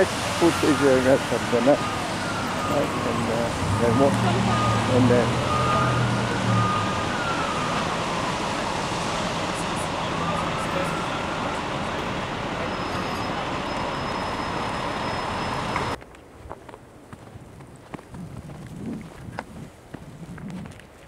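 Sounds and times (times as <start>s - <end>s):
emergency siren wailing: 0.0s - 16.0s
low engine hum: 0.0s - 16.0s
city street traffic noise: 0.0s - 17.1s.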